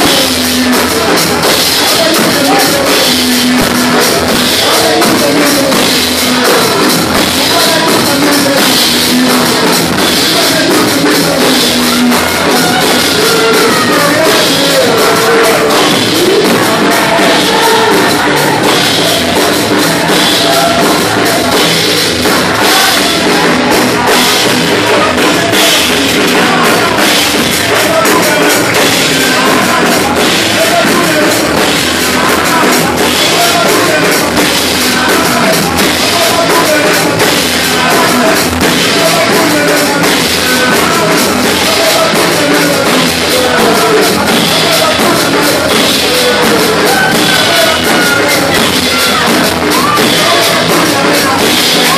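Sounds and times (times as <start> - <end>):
congregation singing: 0.0 - 51.9
drum kit: 0.0 - 51.9
live gospel music: 0.0 - 51.9.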